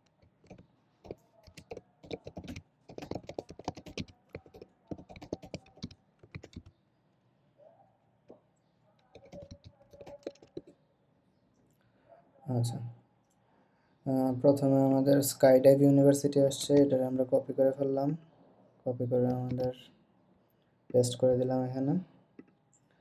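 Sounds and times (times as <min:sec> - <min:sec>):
typing on computer keyboard: 0:00.0 - 0:06.7, 0:09.0 - 0:10.7.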